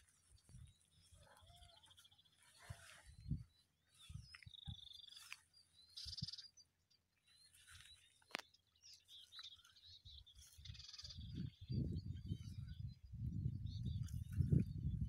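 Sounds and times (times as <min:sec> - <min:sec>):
small birds chirping: 0:00.0 - 0:15.0
harsh bird chatter: 0:01.0 - 0:06.6, 0:07.8 - 0:12.9.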